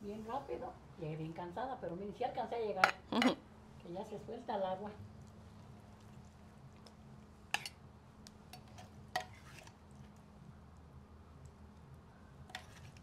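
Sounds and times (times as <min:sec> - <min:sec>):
faint low hum: 0:00.0 - 0:13.0
spoon clinking against clay pot: 0:07.5 - 0:07.8.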